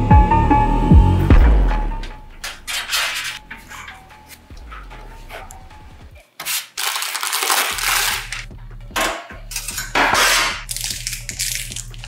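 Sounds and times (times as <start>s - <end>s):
background music with bass line: 0.0s - 6.2s, 7.8s - 12.0s
metal screws rattling and clinking: 9.5s - 12.0s.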